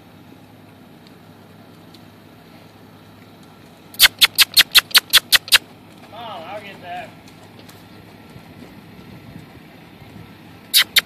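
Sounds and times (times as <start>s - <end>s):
tongue clicks: 4.0s - 5.6s, 10.7s - 11.0s.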